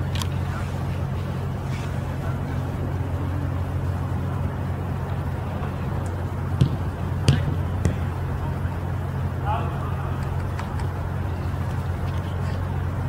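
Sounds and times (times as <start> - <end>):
steady low hum: 0.0 - 13.0
soccer ball kicks: 6.5 - 8.3.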